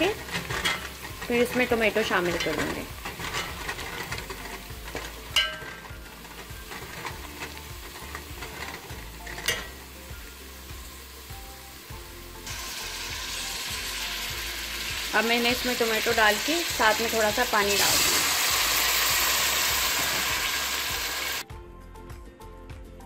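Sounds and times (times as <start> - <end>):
steel spoon clinking against pot: 0.0 - 9.8
onions sizzling in hot oil: 0.0 - 21.4.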